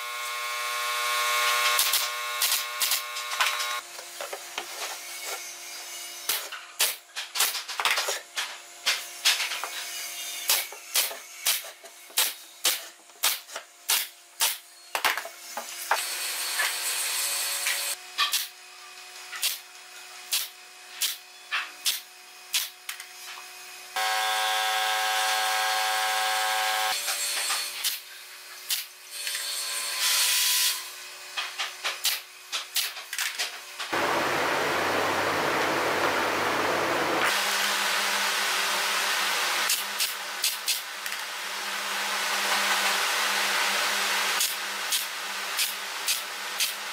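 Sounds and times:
pneumatic nailer driving nails: 1.4s - 3.8s, 10.4s - 15.2s, 19.3s - 19.6s, 20.3s - 23.0s, 31.4s - 34.0s, 39.7s - 40.9s, 44.4s - 46.8s
steady machine drone: 33.9s - 37.4s
loud steady rushing noise: 34.0s - 37.3s.

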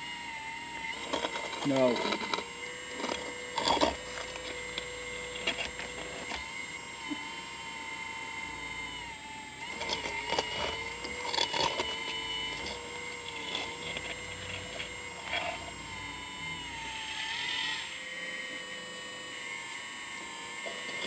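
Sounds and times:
excavator hydraulic pump whining: 0.0s - 18.8s, 19.4s - 21.0s
bucket scraping into soil: 9.7s - 15.9s.

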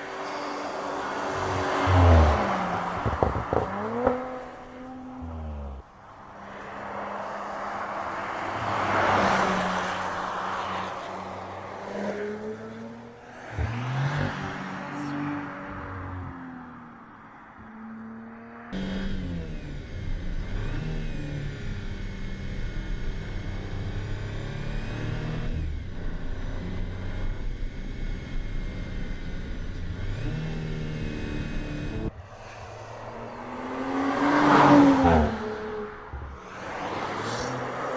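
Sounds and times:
car driving past: 0.0s - 19.2s, 31.9s - 37.9s.

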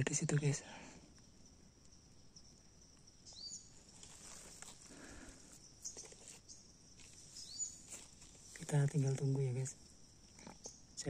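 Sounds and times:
rising bird chirp: 1.3s - 8.6s.

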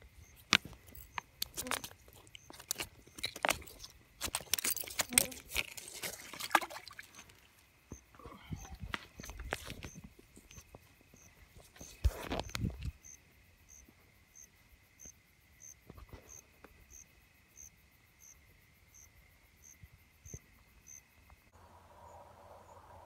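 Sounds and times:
cricket chirping: 0.0s - 23.0s
soft steady hiss: 0.0s - 23.0s.

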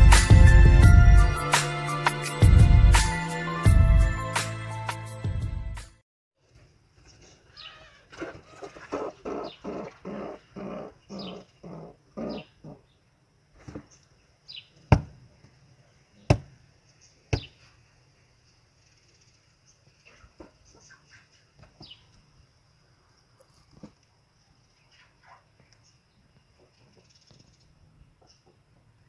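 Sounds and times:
short animal calls: 7.5s - 12.9s.

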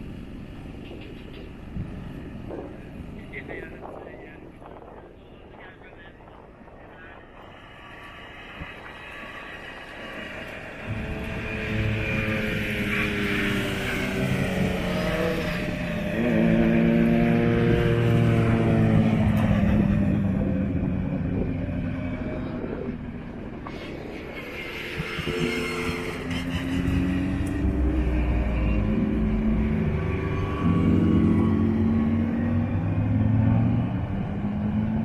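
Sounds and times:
rally car engine revving: 8.8s - 35.0s.

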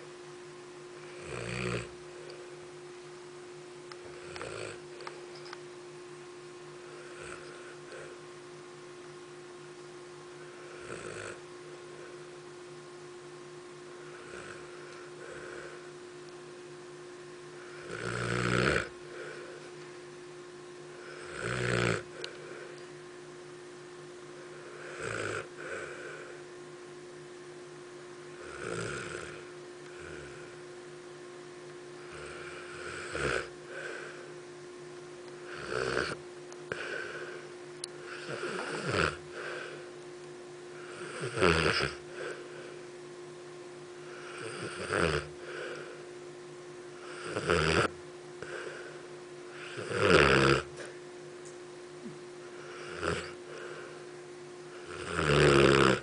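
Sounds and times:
pet snoring: 1.0s - 2.0s, 4.1s - 4.9s, 6.8s - 8.2s, 10.5s - 11.5s, 14.0s - 15.9s, 17.6s - 19.6s, 20.9s - 22.7s, 24.5s - 26.4s, 28.3s - 30.6s, 32.0s - 34.3s, 35.4s - 37.4s, 38.0s - 39.8s, 40.8s - 42.8s, 44.0s - 46.0s, 47.0s - 50.9s, 52.5s - 54.0s, 54.7s - 56.0s.

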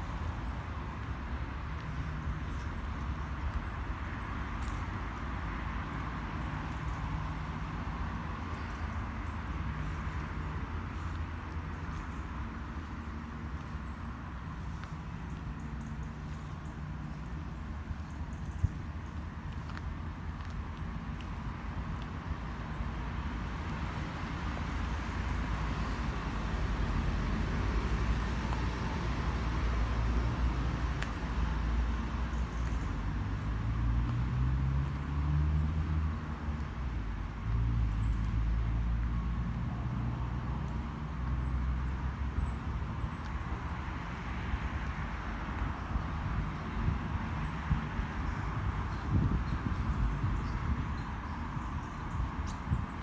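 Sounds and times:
road traffic rumble: 0.0s - 53.0s
passing vehicle engine: 23.4s - 50.6s.

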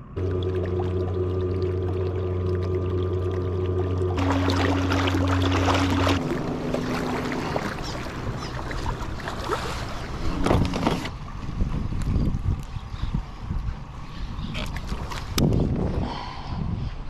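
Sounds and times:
water sloshing and splashing: 0.0s - 11.9s, 14.6s - 15.8s
low hum with held tones: 0.0s - 17.0s
wind on microphone: 5.8s - 17.0s.

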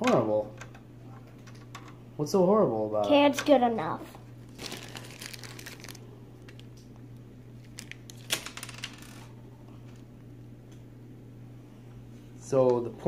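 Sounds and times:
paper crinkle: 4.4s - 6.8s, 7.6s - 9.2s.

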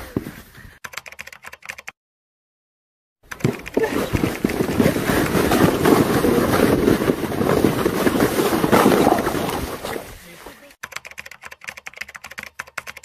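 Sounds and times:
sled scraping over snow: 3.4s - 10.6s.

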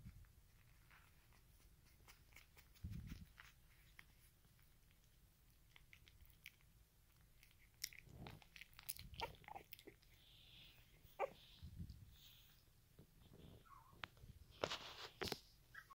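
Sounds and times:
puppy suckling wet sucking: 7.4s - 10.2s.

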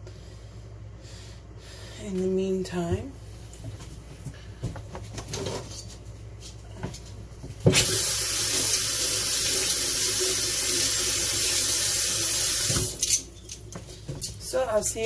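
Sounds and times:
water running into sink: 7.7s - 13.0s.

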